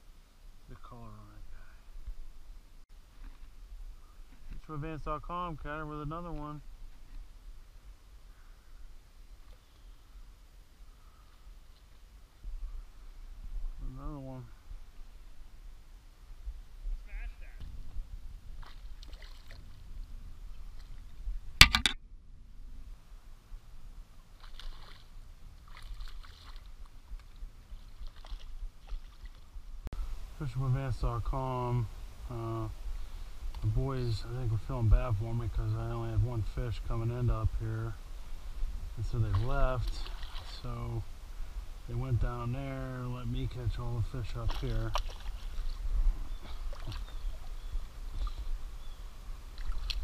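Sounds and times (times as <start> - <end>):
river water splashing: 18.4 - 21.0, 24.2 - 29.6, 39.0 - 41.4, 43.4 - 50.0.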